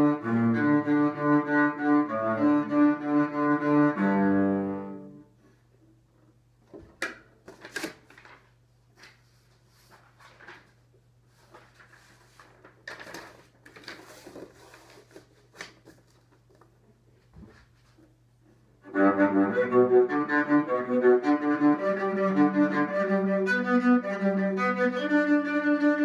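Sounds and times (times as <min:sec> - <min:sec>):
cello being handled rustling: 0:07.4 - 0:18.3.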